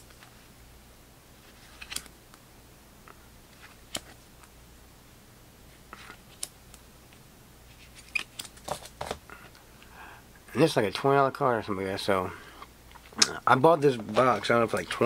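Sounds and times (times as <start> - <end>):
trading cards shuffled by hand: 1.4 - 2.1, 7.7 - 9.2.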